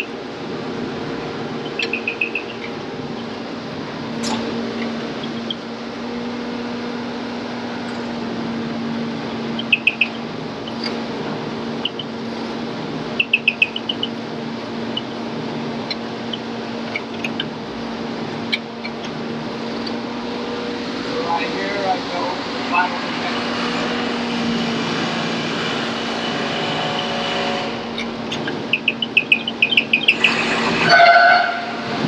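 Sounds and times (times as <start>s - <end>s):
grinder humming: 14.1s - 28.9s.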